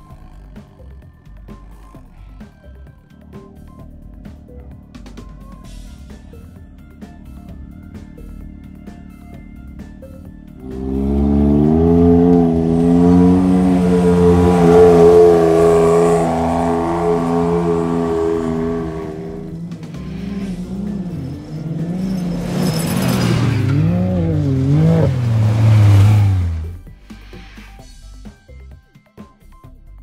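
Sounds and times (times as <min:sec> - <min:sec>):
buggy engine revving: 0:00.0 - 0:27.8.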